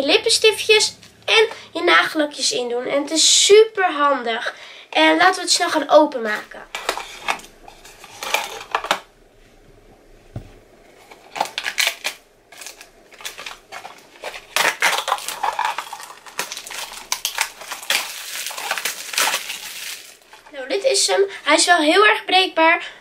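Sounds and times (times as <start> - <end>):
plastic wrapping crinkling: 5.5 - 9.1, 10.9 - 20.6.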